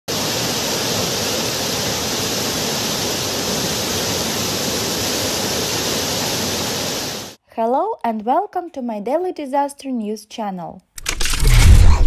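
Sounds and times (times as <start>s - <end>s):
river floodwater rushing: 0.1s - 7.4s.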